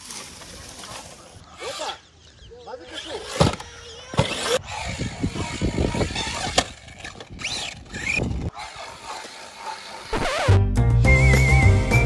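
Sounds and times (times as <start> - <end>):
toy truck engine revving: 1.6 - 2.1, 2.8 - 10.4.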